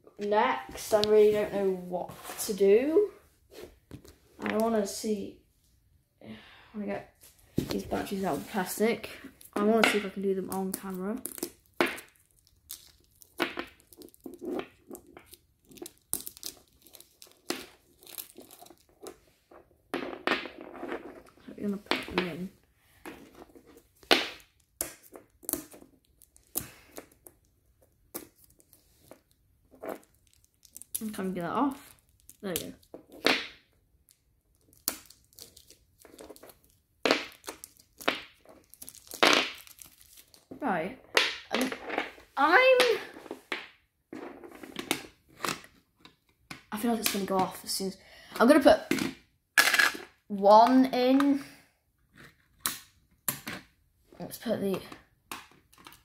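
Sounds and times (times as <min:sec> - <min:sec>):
plastic packaging crackling and tearing: 0:10.7 - 0:19.0, 0:30.0 - 0:31.2, 0:34.5 - 0:40.5
plastic shrink-wrap crinkling: 0:30.0 - 0:31.2, 0:34.5 - 0:40.5.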